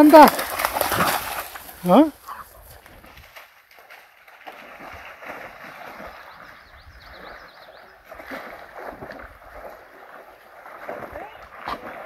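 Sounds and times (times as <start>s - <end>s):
dog splashing in water: 0.0s - 12.0s
stream flowing: 3.2s - 12.0s.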